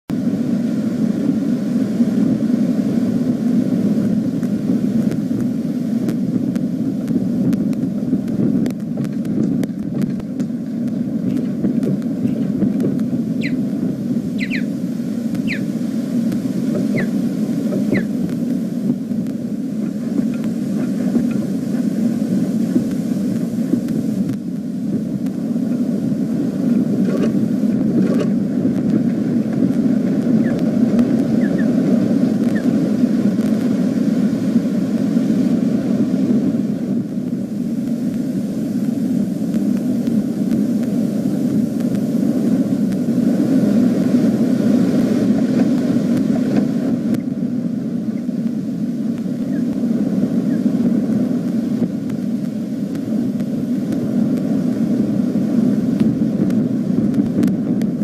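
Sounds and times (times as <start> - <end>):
low rumble: 0.1 - 58.0
osprey calls: 13.3 - 15.8, 16.5 - 18.2, 30.3 - 32.8, 49.4 - 49.7, 50.4 - 50.7.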